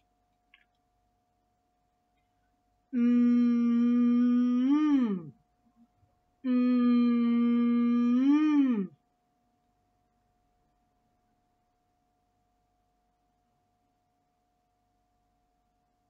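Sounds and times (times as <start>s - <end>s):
woman humming: 3.0s - 5.4s, 6.4s - 9.0s.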